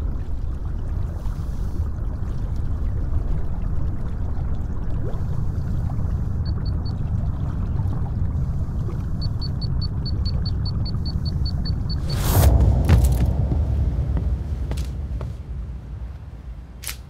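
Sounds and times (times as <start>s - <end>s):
low engine rumble: 5.7s - 17.0s.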